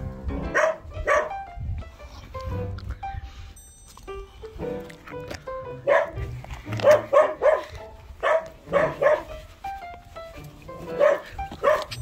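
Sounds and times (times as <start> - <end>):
puppy barking in high yips: 0.4 - 1.5, 5.8 - 9.4, 10.9 - 12.0.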